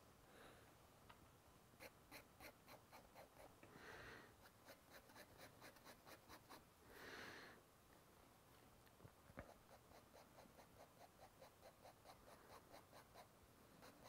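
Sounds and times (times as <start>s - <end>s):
pen nib scratching on paper: 1.8s - 3.6s, 4.4s - 6.7s, 9.4s - 14.0s.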